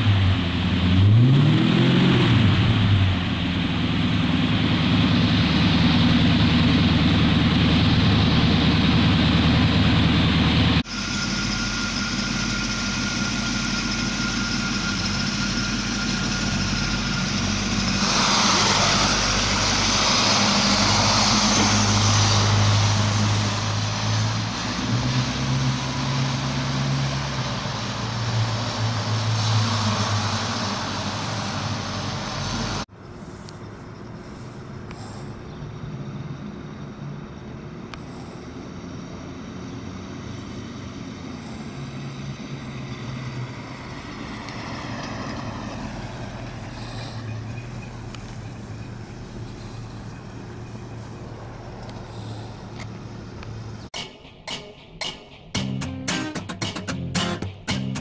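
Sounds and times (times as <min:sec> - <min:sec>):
car engine driving: 0:00.0 - 0:54.0
car engine idling: 0:02.4 - 0:20.7.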